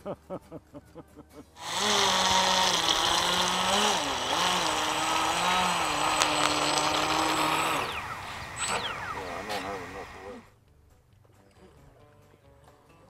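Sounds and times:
water spray hiss: 0:01.6 - 0:10.4
speedboat motor whine: 0:01.6 - 0:10.5.

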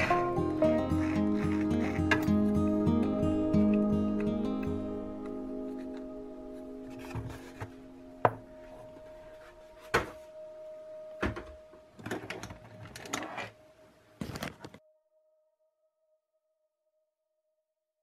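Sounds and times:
acoustic guitar music: 0:00.0 - 0:13.6.

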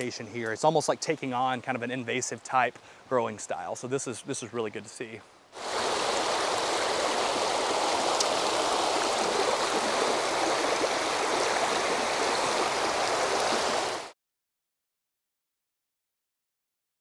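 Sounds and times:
creek water rushing over rocks: 0:05.6 - 0:14.1.

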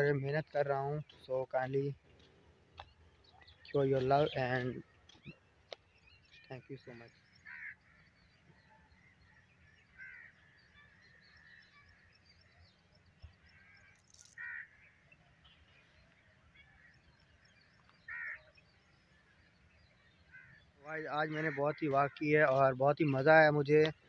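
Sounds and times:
small birds chirping: 0:00.0 - 0:24.0
crow cawing: 0:07.3 - 0:11.9, 0:13.4 - 0:15.1, 0:18.0 - 0:18.6, 0:20.2 - 0:22.3.

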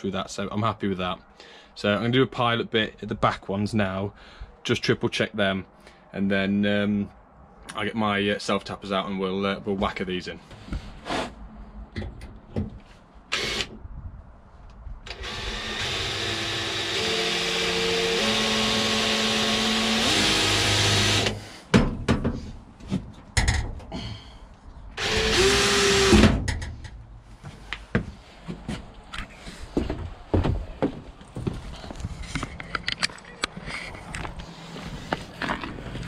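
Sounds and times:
cordless drill boring into steel: 0:13.3 - 0:13.7, 0:15.1 - 0:21.4, 0:25.0 - 0:26.2
knocks: 0:21.7 - 0:22.4.

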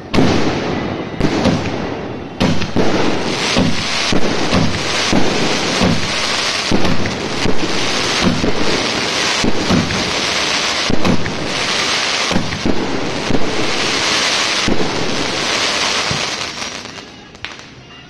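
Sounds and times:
firework sharp crack: 0:00.0 - 0:17.8
firework thumps: 0:01.2 - 0:16.5.

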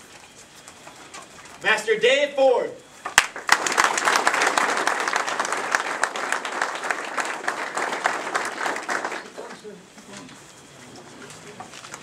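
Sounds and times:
audience applauding: 0:03.2 - 0:09.8.

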